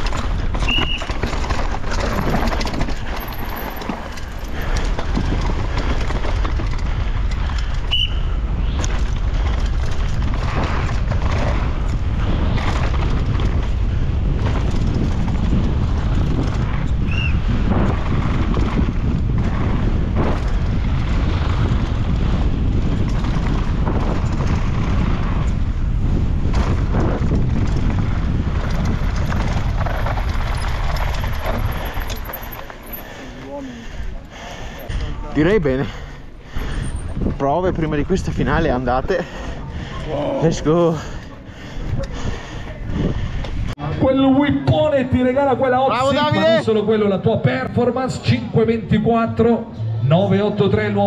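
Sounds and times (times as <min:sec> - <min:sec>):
mountain bike clattering over rough ground: 0:00.0 - 0:36.0.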